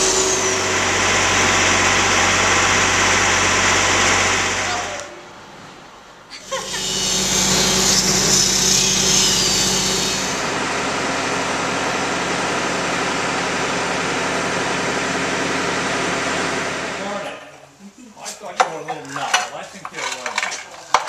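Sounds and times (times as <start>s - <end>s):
angle grinder cutting steel: 0.0s - 5.1s, 6.4s - 10.6s.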